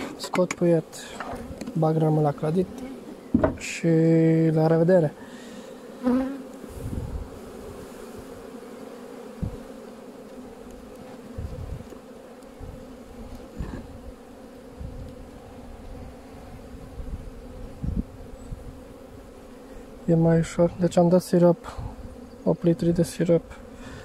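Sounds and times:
honeybees buzzing: 0.0s - 24.0s
low thumps: 3.3s - 3.7s.

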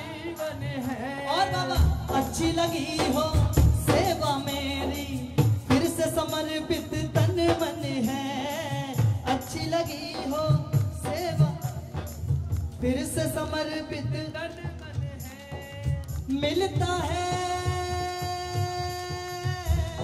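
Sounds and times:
drums and instruments accompanying: 0.0s - 20.0s
man singing through microphone: 0.0s - 20.0s.

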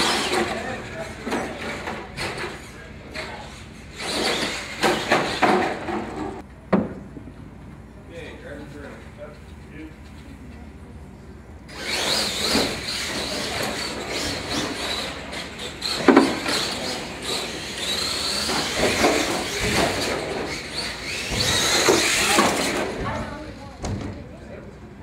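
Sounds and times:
electric motor whine: 11.7s - 23.0s.

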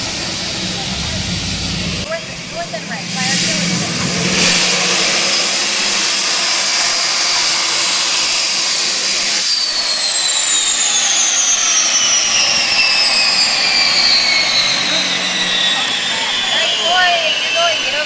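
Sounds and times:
gas turbine car driving by: 0.0s - 18.0s.

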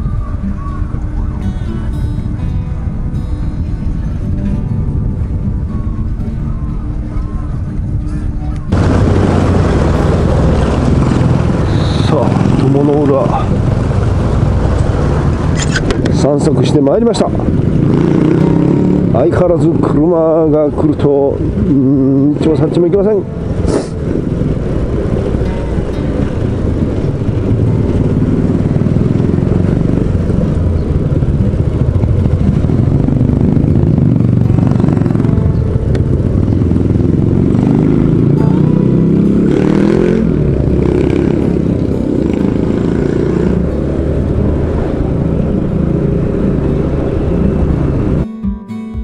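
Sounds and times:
wind rushing over microphone: 0.0s - 48.4s
acoustic guitar music: 0.0s - 49.0s
motorcycle engine running: 0.0s - 49.0s.

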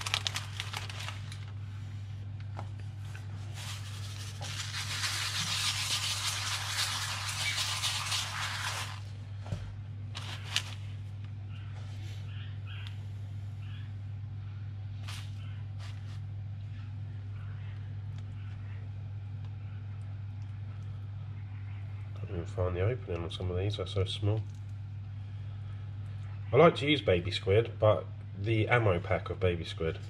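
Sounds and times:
steady low hum: 0.0s - 30.0s
salt pouring onto newspaper: 3.6s - 9.0s.

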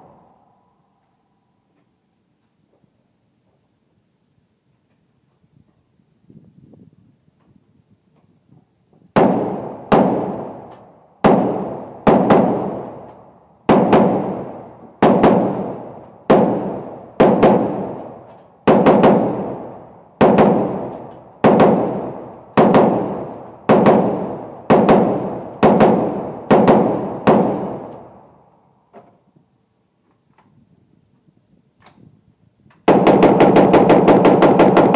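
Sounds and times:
rifle shots echoing indoors: 9.2s - 28.5s, 32.8s - 34.9s.

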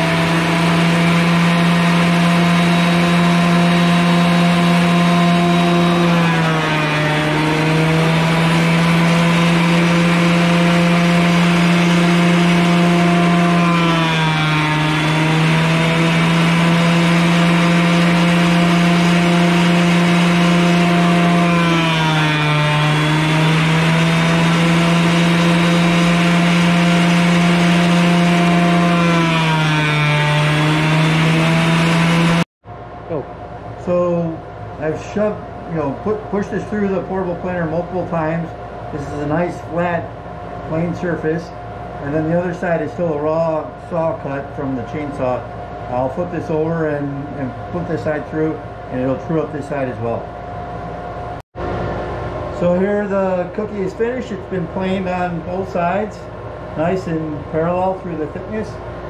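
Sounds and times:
planer whining and cutting wood: 0.0s - 32.5s, 52.5s - 59.0s.

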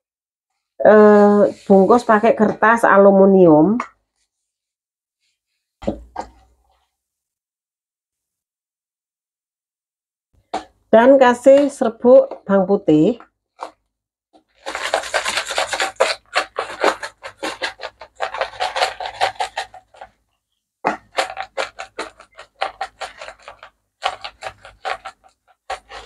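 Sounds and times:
spice shaker rattling: 14.6s - 20.2s, 21.0s - 26.0s.

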